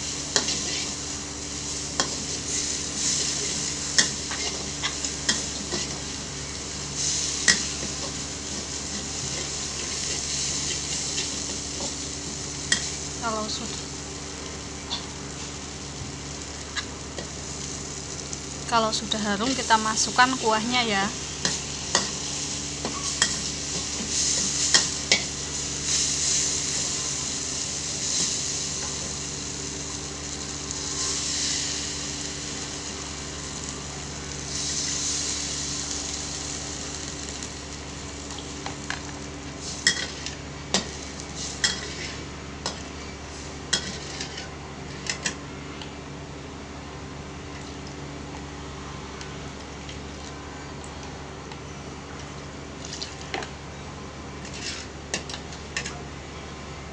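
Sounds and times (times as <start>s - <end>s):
paste sizzling in a wok: 0.0s - 44.5s
metal spatula scraping a wok: 41.4s - 42.2s, 43.8s - 45.0s, 54.4s - 54.9s.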